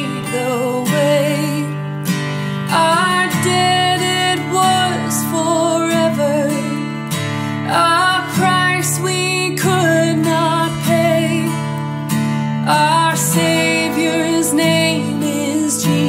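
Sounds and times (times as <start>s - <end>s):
strummed acoustic guitar: 0.0s - 16.0s
woman singing: 0.0s - 16.0s.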